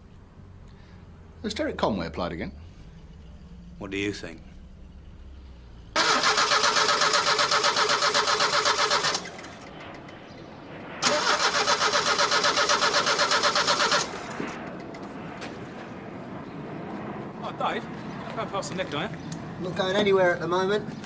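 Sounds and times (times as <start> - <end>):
car starter motor cranking: 6.0 - 9.6, 11.0 - 14.3.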